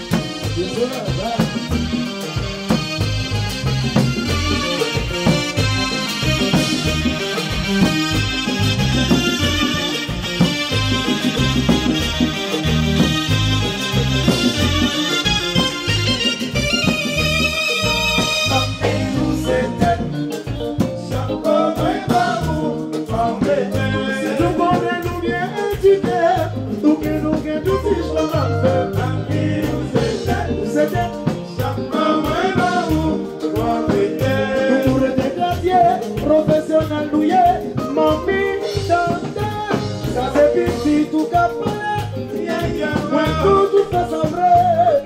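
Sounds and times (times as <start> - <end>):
man singing: 0.0 - 2.0, 18.2 - 45.0
latin dance band playing: 0.0 - 45.0.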